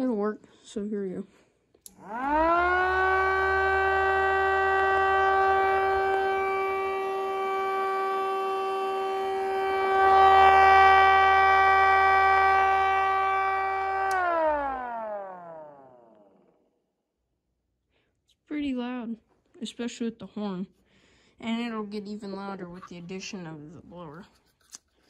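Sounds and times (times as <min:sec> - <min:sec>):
siren winding up: 0:01.9 - 0:16.6.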